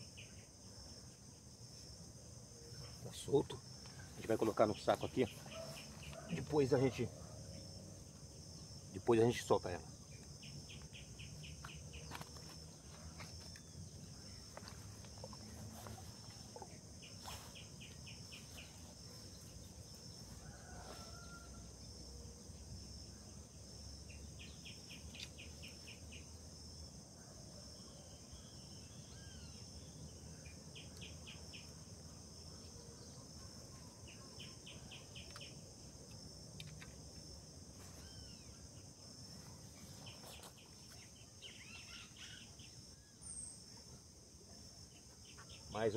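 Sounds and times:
insect chorus: 0.0 - 45.9
faint bird chirps: 27.8 - 29.7, 37.8 - 44.0.

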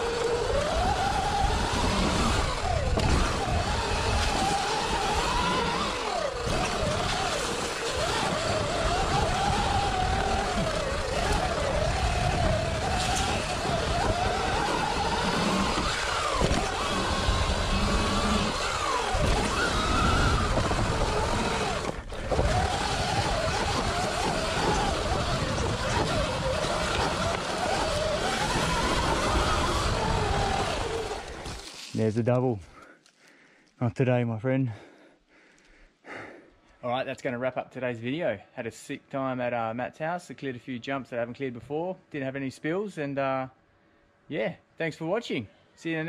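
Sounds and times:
electric motor whining: 0.0 - 31.9
wind and trail noise: 0.0 - 32.8.

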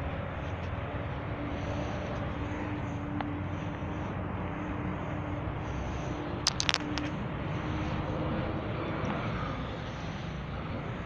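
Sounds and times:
sharp clicks: 6.5 - 7.1.

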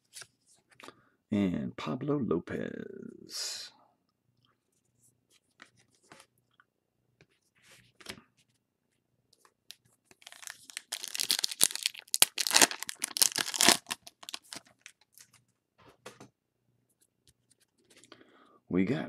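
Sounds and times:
foil wrapper being torn open: 10.1 - 15.0.

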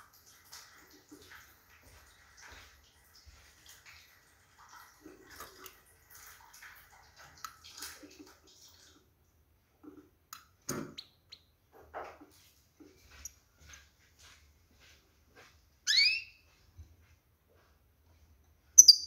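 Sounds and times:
goldfinch chirping and twittering: 15.9 - 16.3, 18.8 - 19.0.

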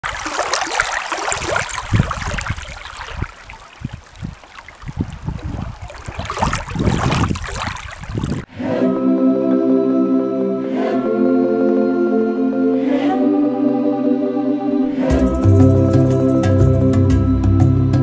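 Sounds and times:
small waves lapping and splashing: 0.0 - 8.5.

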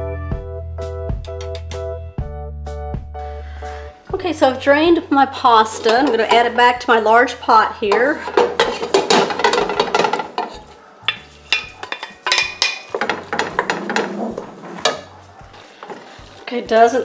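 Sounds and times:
metal strainer clattering on pot: 5.3 - 16.5
wooden spoon knocking on pot: 5.4 - 15.2.

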